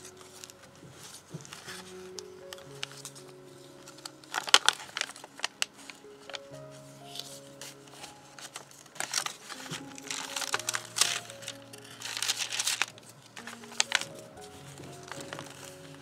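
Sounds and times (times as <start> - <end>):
paper pages rustling: 0.0 - 16.0
soft background music: 0.0 - 16.0.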